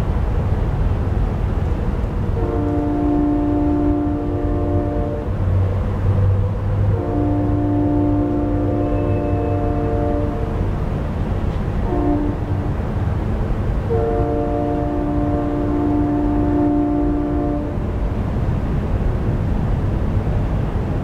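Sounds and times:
train horn blasts: 2.3s - 5.6s, 6.8s - 10.8s, 11.8s - 12.8s, 13.8s - 18.0s.

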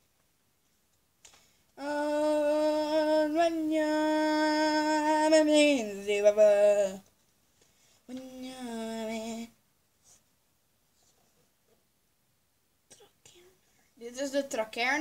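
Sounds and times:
girl singing a long note: 1.8s - 7.0s.

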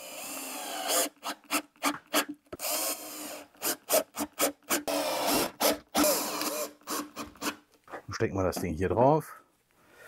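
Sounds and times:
cordless drill driving screws: 2.6s - 7.6s.

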